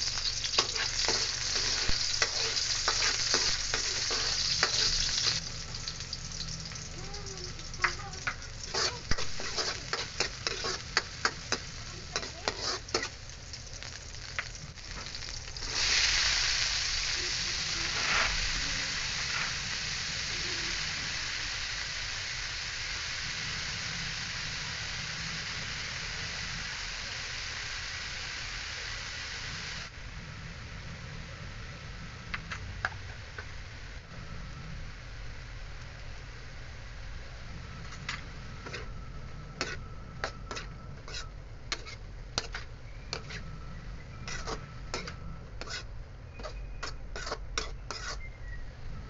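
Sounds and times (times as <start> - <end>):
stirring scraping against wok: 0.0 - 17.1, 37.8 - 48.3
garlic and onion frying in oil: 0.0 - 49.0
loud steady sizzle: 0.0 - 49.0.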